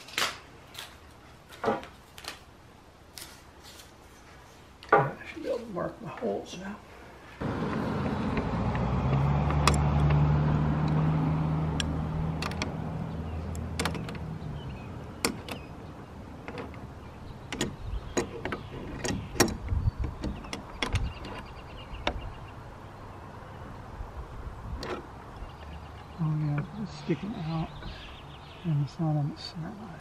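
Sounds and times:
low motor hum: 7.4s - 23.8s
metallic clicks and knocks: 8.3s - 10.2s, 11.7s - 12.8s, 13.5s - 14.3s, 15.2s - 15.7s, 16.4s - 22.3s, 24.8s - 25.1s.

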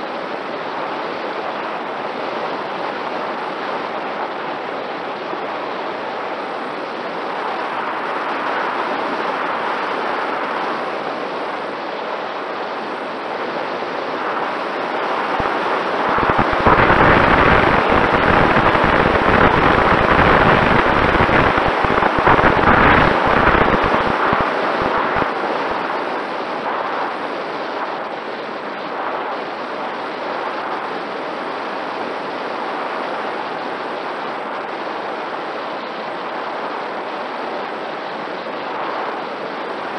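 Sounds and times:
wind buffeting microphone: 13.8s - 28.0s.

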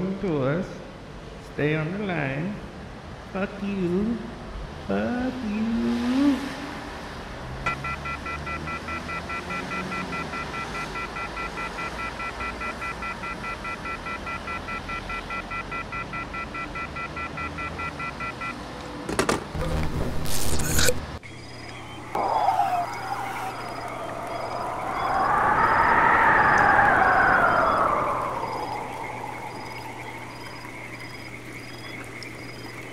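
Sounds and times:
telephone off-hook warning tone: 7.7s - 18.5s.

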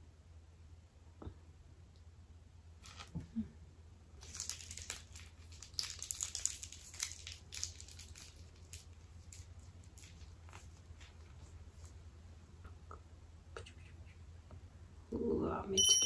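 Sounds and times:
plastic piping bag crinkling: 2.8s - 3.2s, 4.2s - 12.0s.

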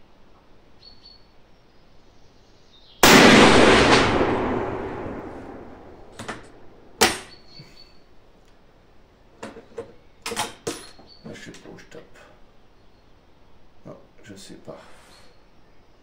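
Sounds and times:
rifle shot with echo: 3.0s - 7.4s.

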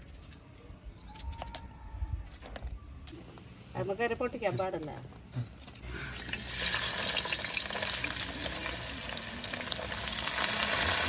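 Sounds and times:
onions sizzling in hot oil: 6.2s - 11.0s.

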